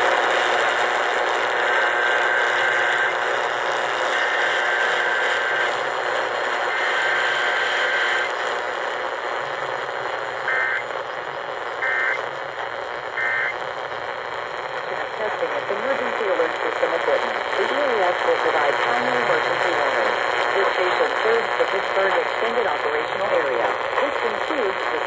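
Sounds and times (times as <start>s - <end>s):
radio static hiss: 0.0s - 25.0s
buzzy digital data tones: 10.4s - 12.3s, 13.1s - 13.6s.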